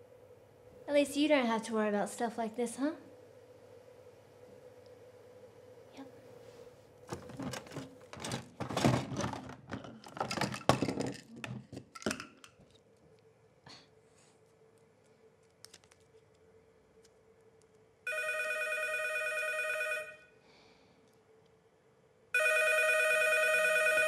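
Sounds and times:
faint steady hum: 0.0 - 24.0
small objects clicking and clattering: 7.1 - 12.8.

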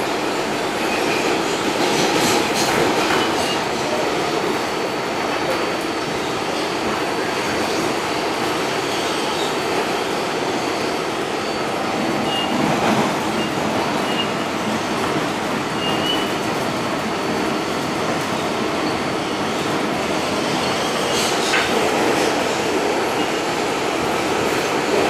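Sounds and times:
wheels rumbling on rail: 0.0 - 25.0
high wheel squeals: 15.7 - 16.4.

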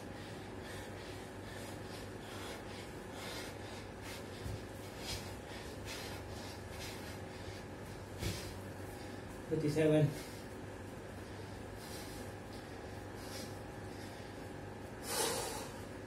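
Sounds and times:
man breathing heavily: 0.0 - 16.0.

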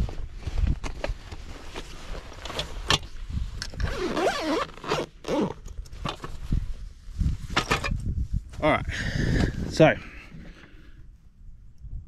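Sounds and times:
zipper being pulled closed: 3.7 - 5.8.

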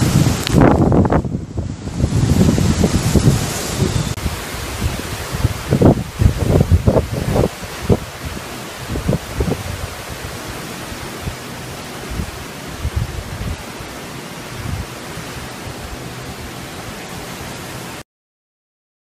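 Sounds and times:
wind buffeting microphone: 0.0 - 17.6
storm wind through palm trees: 0.0 - 18.0.

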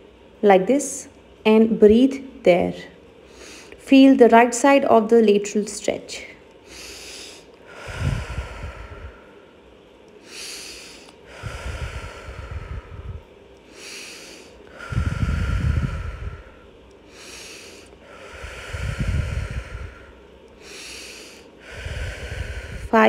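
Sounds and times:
woman breathing deeply: 3.1 - 3.8, 6.2 - 23.0.

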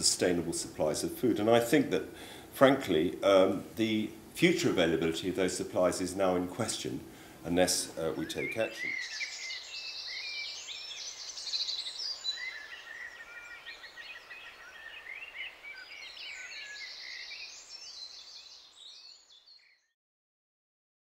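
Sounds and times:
faint outdoor hiss: 0.0 - 19.8
birds singing: 6.4 - 20.0.

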